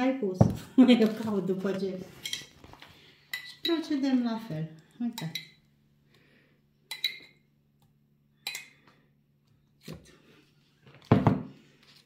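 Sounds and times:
spoon clinking against glass jar: 6.9 - 7.4.

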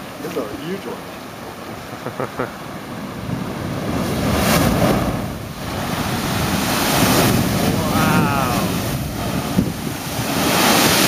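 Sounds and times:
ocean surge whooshing through blowhole: 2.6 - 11.0.

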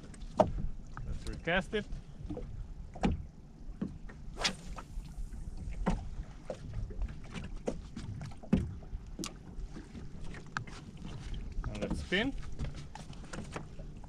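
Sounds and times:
wind and water rumble: 0.0 - 14.0
fishing rod swish: 4.4 - 5.6.

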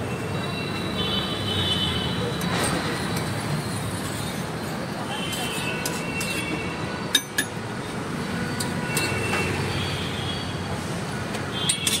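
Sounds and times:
metal utensils clinking: 5.3 - 7.6, 11.6 - 12.0.

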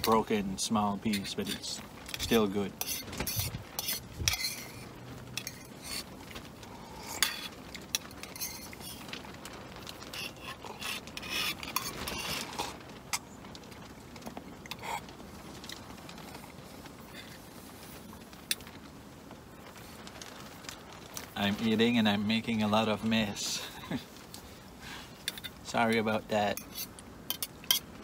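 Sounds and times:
utensil scraping in cook pot: 0.0 - 9.1, 10.0 - 12.8, 26.4 - 27.9.

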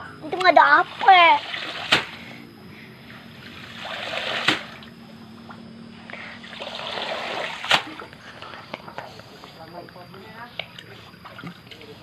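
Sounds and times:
water splashing off a mat: 1.5 - 2.2, 3.8 - 4.8, 6.8 - 8.0.

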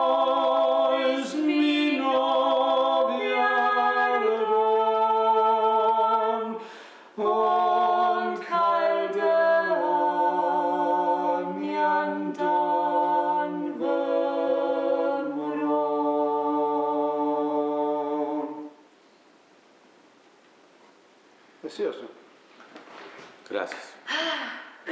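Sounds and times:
voices singing a cappella: 0.0 - 18.8.

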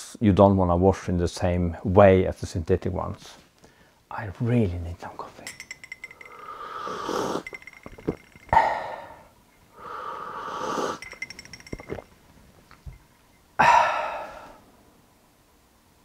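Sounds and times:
breathy exhale: 6.3 - 7.5, 8.5 - 11.0, 13.6 - 14.7
man slurping coffee: 6.3 - 8.8, 10.2 - 12.0.

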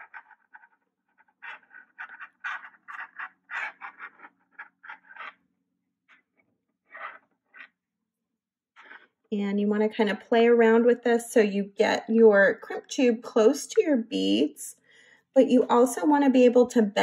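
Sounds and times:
fingers scratching beading wire: 0.0 - 5.4, 6.9 - 7.7.

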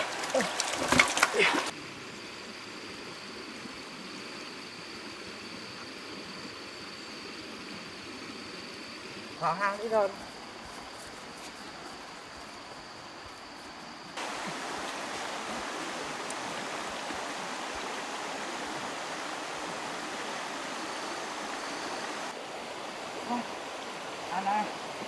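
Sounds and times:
stream water rushing: 0.0 - 2.1, 14.1 - 25.0.

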